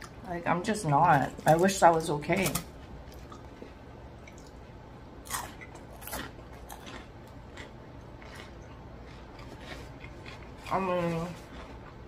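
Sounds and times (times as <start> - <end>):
chewing with mouth clicks: 3.1 - 4.6, 5.3 - 12.0.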